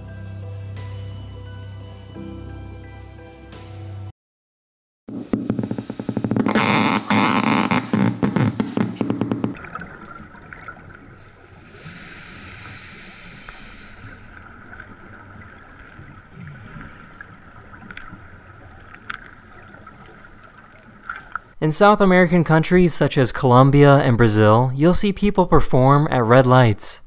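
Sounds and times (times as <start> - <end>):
muffled underwater hiss: 9.6 - 21.2
faint clicks: 17.8 - 19.6.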